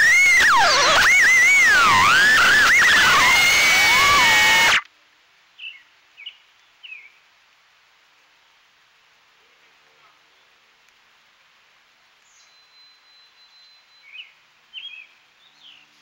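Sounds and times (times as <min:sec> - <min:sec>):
drone motors whining: 0:00.0 - 0:04.8.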